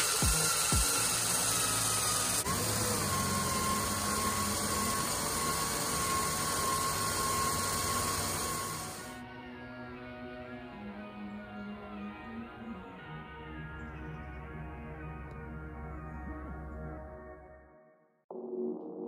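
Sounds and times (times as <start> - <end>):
hiss: 0.0 - 9.1
power tool whining: 0.0 - 9.2.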